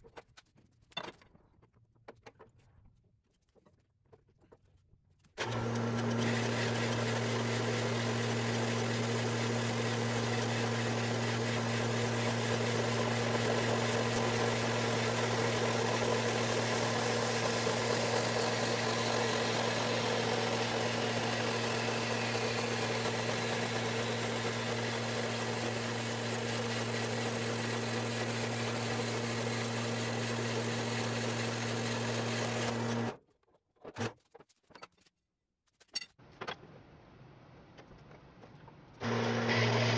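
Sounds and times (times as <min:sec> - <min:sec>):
band saw motor hum: 0:05.4 - 0:33.2, 0:39.0 - 0:39.9.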